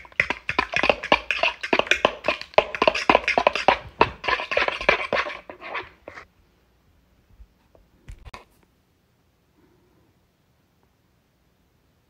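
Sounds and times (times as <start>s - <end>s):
hand whisk beating in plastic bowl: 0.0s - 6.2s.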